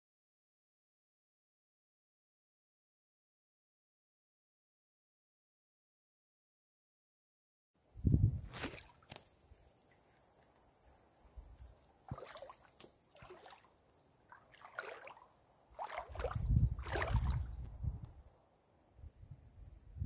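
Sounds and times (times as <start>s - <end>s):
water lapping against rocks: 12.0s - 17.7s.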